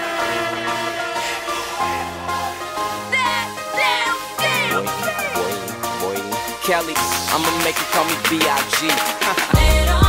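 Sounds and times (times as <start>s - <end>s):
held synthesizer notes: 0.0s - 6.7s.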